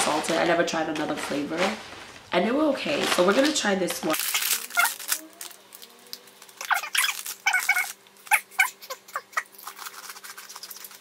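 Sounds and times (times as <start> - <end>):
plastic snack bag crinkling: 0.0 - 11.0
crunchy chips being chewed: 4.1 - 11.0.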